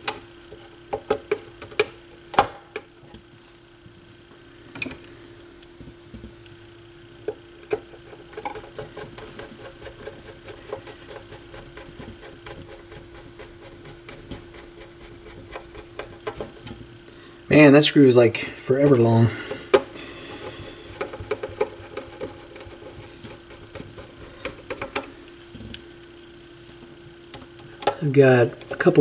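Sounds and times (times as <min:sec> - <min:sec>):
faint hum: 0:00.0 - 0:29.0
rapid light ticks and scrapes: 0:07.7 - 0:16.8, 0:20.8 - 0:25.1.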